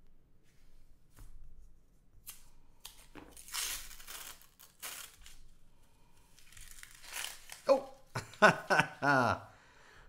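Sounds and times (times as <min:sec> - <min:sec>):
paper coin wrapper tearing: 0:02.3 - 0:05.5, 0:06.4 - 0:08.1.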